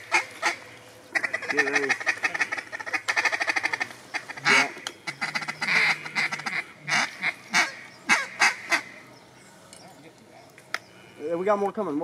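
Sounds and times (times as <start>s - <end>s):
duck quacking: 0.0s - 9.0s.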